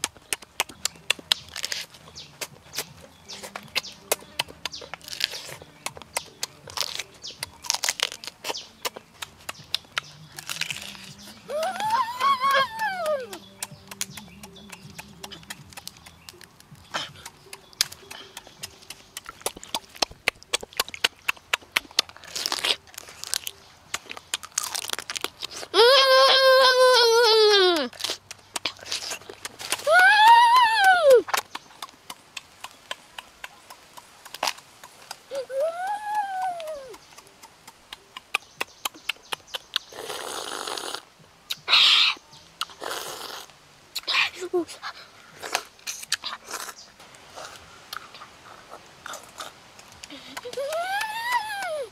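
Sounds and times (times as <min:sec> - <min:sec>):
wet mouth clicks and lip smacks: 0:00.0 - 0:11.4, 0:13.0 - 0:25.8, 0:27.8 - 0:30.4, 0:31.2 - 0:35.4, 0:36.4 - 0:41.7, 0:42.6 - 0:44.2, 0:45.4 - 0:46.8, 0:47.4 - 0:51.8
crab shell cracking and crunching: 0:00.0 - 0:25.7, 0:27.7 - 0:30.5, 0:31.2 - 0:35.2
chewing: 0:00.0 - 0:25.8, 0:27.7 - 0:30.4, 0:31.1 - 0:41.9, 0:42.6 - 0:51.7
person humming: 0:11.0 - 0:15.8, 0:25.7 - 0:28.0, 0:29.8 - 0:31.3, 0:35.3 - 0:37.0, 0:50.1 - 0:51.9
person slurping: 0:39.9 - 0:41.1, 0:42.6 - 0:44.1.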